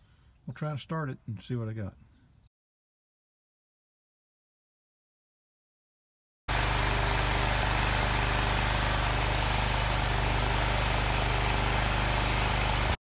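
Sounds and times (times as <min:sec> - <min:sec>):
lawn tractor engine running: 0:06.5 - 0:13.0.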